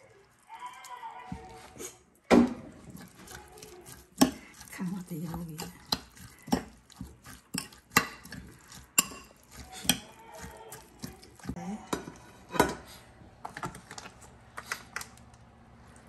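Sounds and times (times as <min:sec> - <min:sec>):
metal spoon stirring in bowl: 0:02.6 - 0:12.8
spoon clinking against ceramic bowl: 0:05.6 - 0:12.1.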